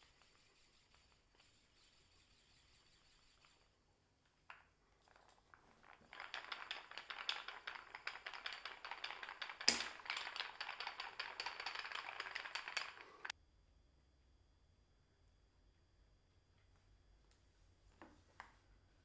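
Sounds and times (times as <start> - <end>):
wooden clamp rattling and clacking: 5.6 - 13.3.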